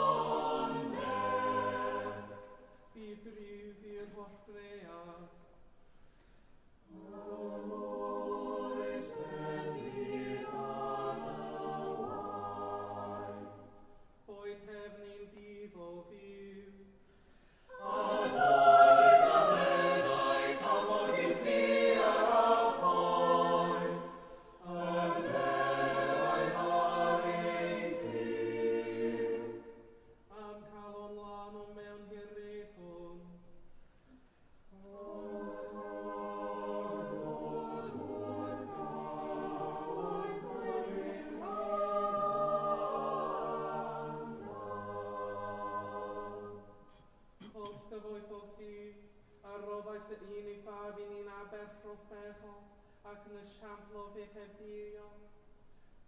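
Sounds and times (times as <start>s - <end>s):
church choir singing: 0.0s - 5.4s, 6.8s - 16.9s, 17.6s - 33.5s, 34.7s - 47.8s.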